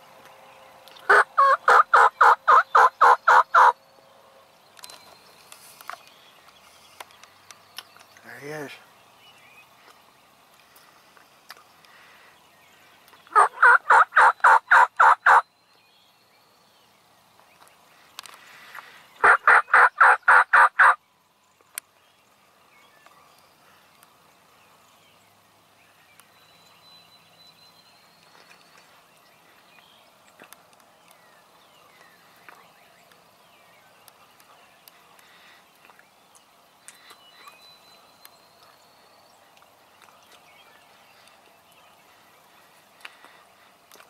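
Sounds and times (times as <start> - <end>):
wild turkey yelps: 1.1 - 3.8, 13.3 - 15.4, 19.2 - 21.0.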